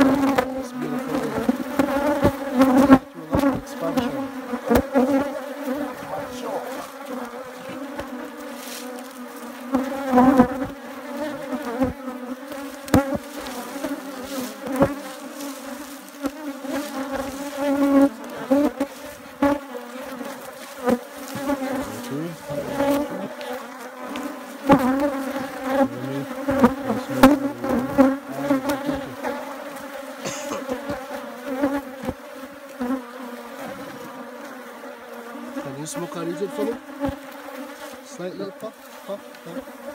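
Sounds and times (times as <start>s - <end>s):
bees buzzing: 0.0s - 39.9s.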